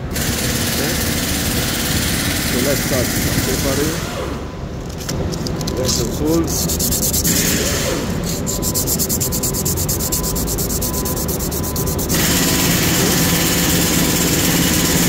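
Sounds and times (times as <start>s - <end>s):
sandpaper rasping on metal: 5.9s - 15.0s.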